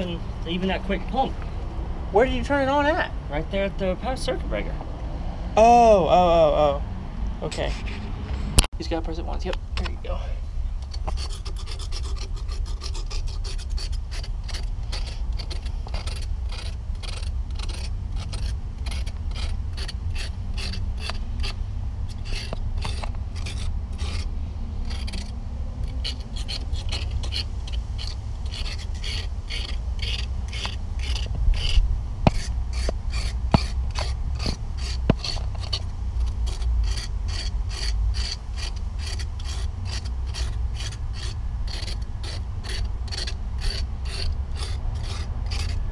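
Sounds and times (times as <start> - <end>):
hand tool scraping rust off pipe: 10.8 - 45.9.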